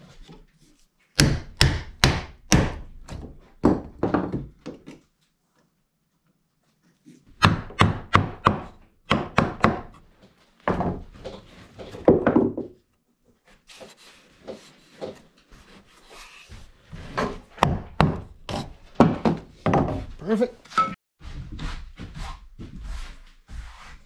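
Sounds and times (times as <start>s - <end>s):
hammer knocking on wood: 1.2s - 2.9s, 7.4s - 9.9s, 17.2s - 20.1s.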